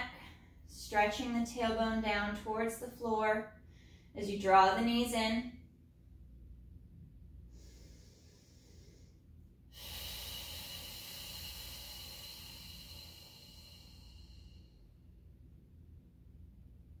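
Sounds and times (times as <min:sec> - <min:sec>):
woman breathing deeply: 0:03.6 - 0:04.2, 0:07.4 - 0:15.0.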